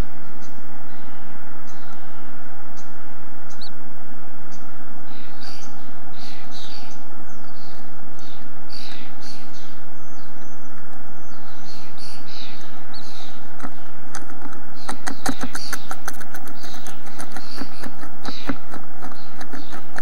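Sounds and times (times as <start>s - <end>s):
microphone hiss: 0.0s - 20.0s
bird chirps: 2.8s - 3.8s, 4.5s - 20.0s
clicks and scratches in nest: 13.6s - 20.0s.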